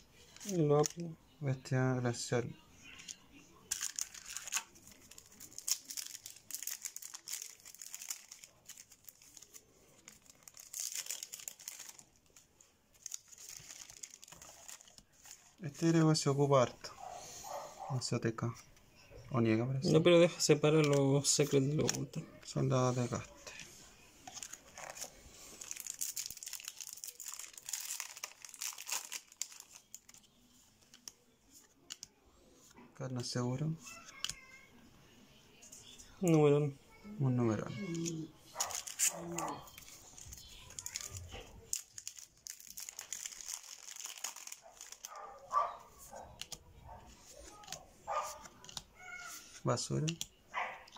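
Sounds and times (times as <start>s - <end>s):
foil wrapper crinkling: 3.7s - 15.9s, 24.2s - 31.2s, 37.7s - 46.6s, 47.2s - 50.2s.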